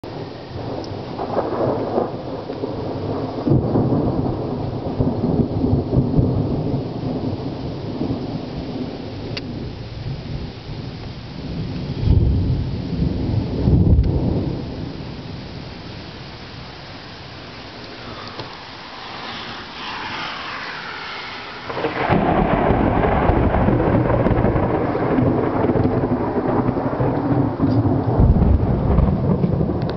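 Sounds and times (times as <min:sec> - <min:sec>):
thunder rumbling: 0:00.0 - 0:29.9
steady hiss: 0:14.1 - 0:22.5.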